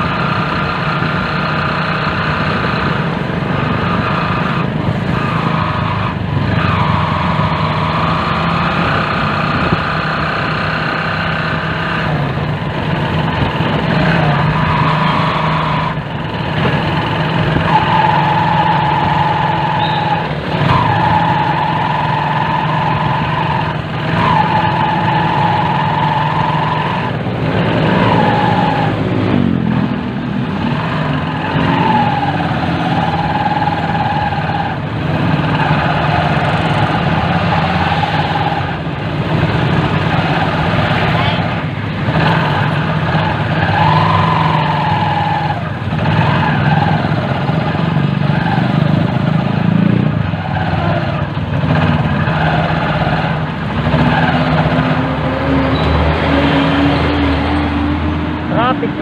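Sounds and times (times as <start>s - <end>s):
small motorcycle engine running: 0.0s - 44.9s.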